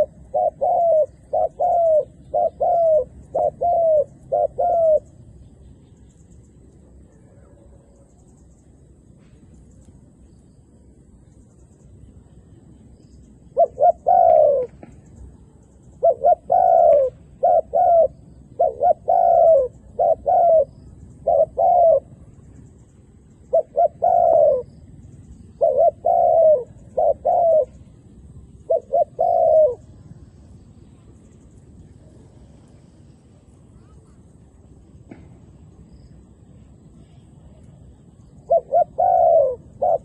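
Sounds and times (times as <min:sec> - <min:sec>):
dove cooing: 0:00.0 - 0:05.6, 0:13.5 - 0:22.4, 0:23.4 - 0:30.2, 0:37.0 - 0:40.0.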